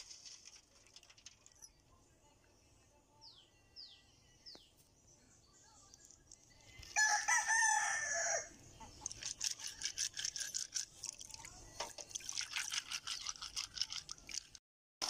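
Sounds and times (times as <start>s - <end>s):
rooster crowing: 7.0s - 8.6s.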